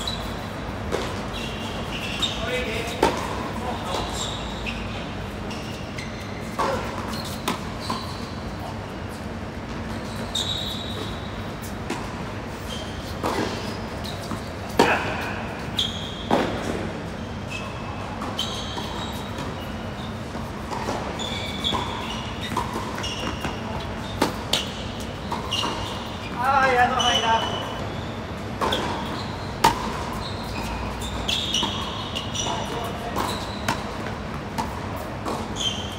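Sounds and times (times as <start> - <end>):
shoes squeaking on court: 0.0 - 35.9
steady background noise: 0.0 - 35.9.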